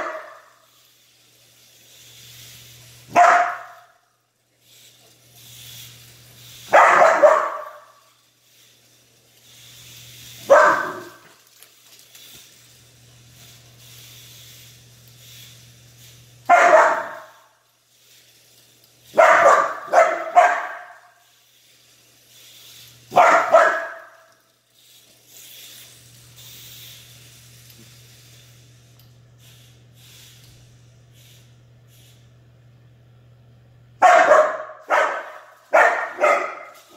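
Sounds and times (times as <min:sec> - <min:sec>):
dog barking: 0:00.0 - 0:00.5, 0:03.1 - 0:03.9, 0:06.7 - 0:08.0, 0:10.4 - 0:11.2, 0:16.5 - 0:17.4, 0:19.2 - 0:21.1, 0:23.1 - 0:24.2, 0:34.0 - 0:36.8
toy car motor whirring: 0:00.0 - 0:32.3, 0:34.8 - 0:36.9.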